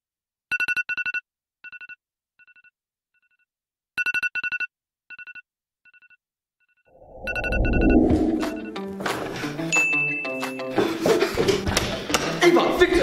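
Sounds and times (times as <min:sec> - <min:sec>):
low swell of sound: 0:07.0 - 0:09.0.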